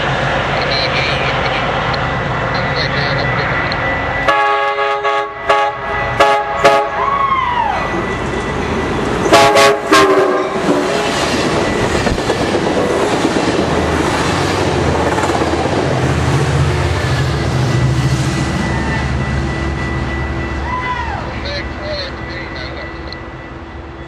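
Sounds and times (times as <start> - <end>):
train wheels rumbling on rails: 0.0 - 24.0
train horn blasts: 4.2 - 8.1, 9.2 - 11.1.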